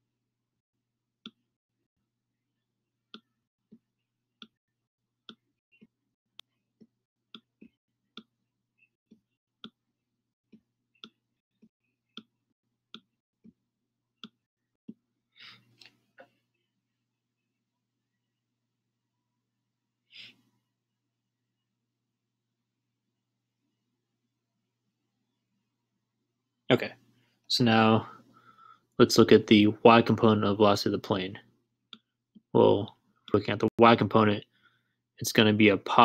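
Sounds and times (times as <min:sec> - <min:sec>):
person breathing: 0:15.3 - 0:15.9, 0:20.1 - 0:20.6, 0:28.0 - 0:29.0, 0:34.5 - 0:35.1.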